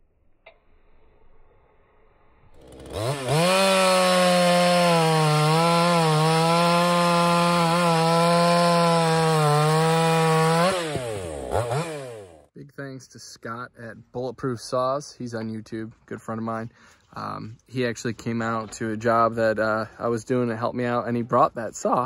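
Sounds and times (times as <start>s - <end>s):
chainsaw cutting log: 2.6s - 12.5s.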